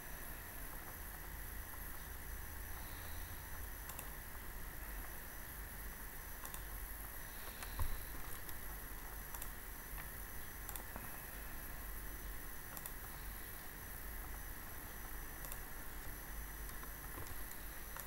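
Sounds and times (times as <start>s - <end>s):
steady low hum and hiss: 0.0s - 18.0s
computer mouse clicking: 3.8s - 4.2s, 6.4s - 6.8s, 7.4s - 11.1s, 12.7s - 13.2s, 15.4s - 18.0s.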